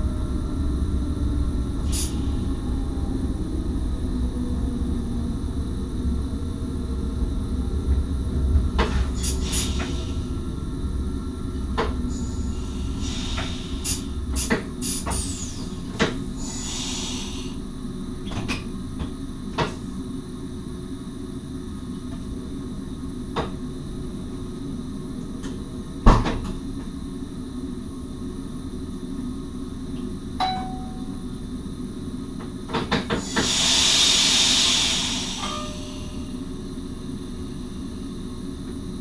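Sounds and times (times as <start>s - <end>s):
steady low hum: 0.0s - 32.8s, 34.8s - 39.0s
air hiss: 1.8s - 2.5s, 8.9s - 10.5s, 12.1s - 17.6s, 33.1s - 36.6s.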